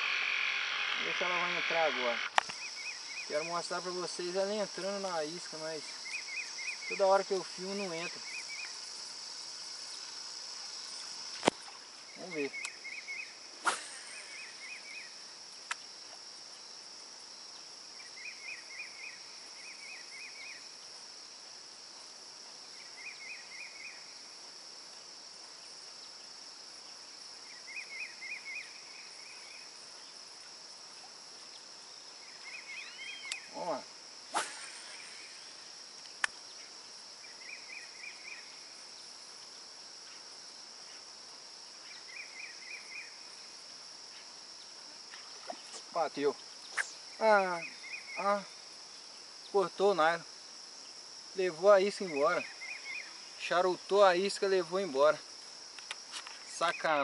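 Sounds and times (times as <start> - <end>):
insects droning: 0.0 - 57.0
falling swish: 34.3 - 35.4.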